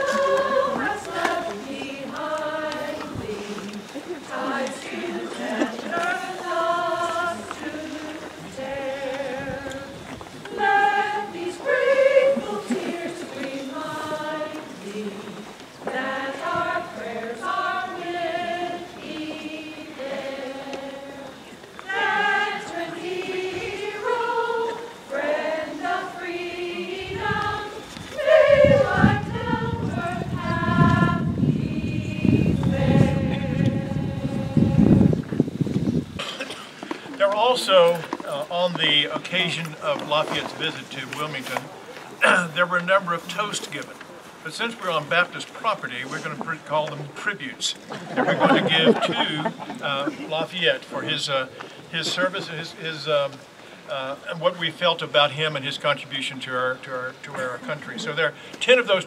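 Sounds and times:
low rumbling noise: 0:00.0 - 0:37.7
group singing slow song: 0:00.0 - 0:42.4, 0:47.8 - 0:52.5.

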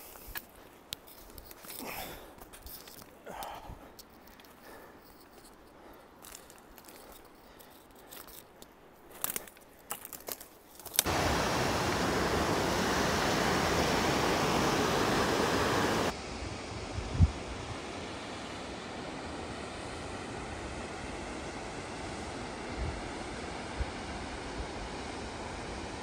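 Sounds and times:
faint crunches and clicks: 0:00.0 - 0:11.1
rush of water: 0:11.1 - 0:16.7.

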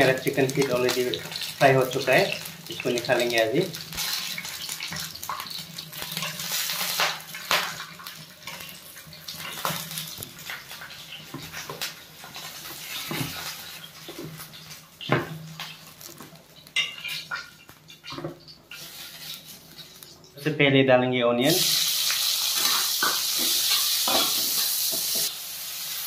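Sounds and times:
utensil scraping a frying pan: 0:11.5 - 0:14.5, 0:16.8 - 0:20.1, 0:21.8 - 0:25.3.

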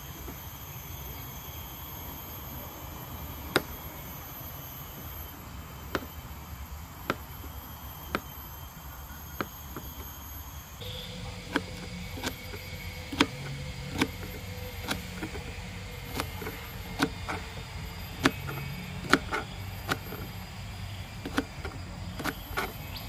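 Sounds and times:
insects buzzing: 0:00.0 - 0:23.0.

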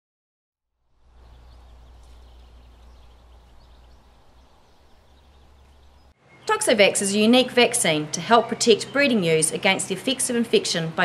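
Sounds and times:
low steady rumble: 0:00.8 - 0:06.1
small birds chirping: 0:00.8 - 0:11.0.

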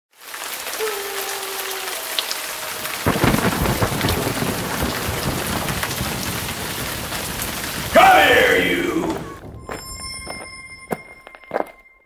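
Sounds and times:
heavy rain hissing: 0:00.2 - 0:09.6
thunderclap rumbling: 0:02.6 - 0:10.2.

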